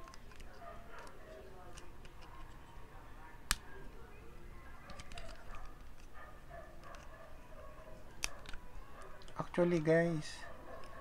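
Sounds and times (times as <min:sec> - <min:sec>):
sharp plastic snap: 0:08.2 - 0:08.6.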